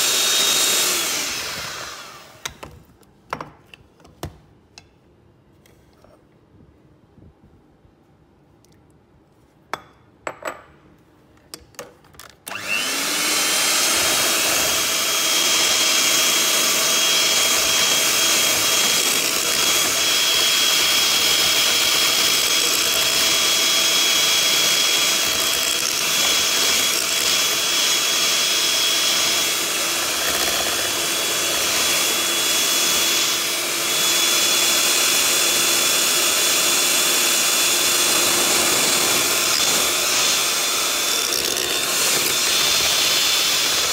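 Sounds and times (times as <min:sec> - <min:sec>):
electric hand mixer whisking batter: 0:00.0 - 0:02.4, 0:12.5 - 0:43.9.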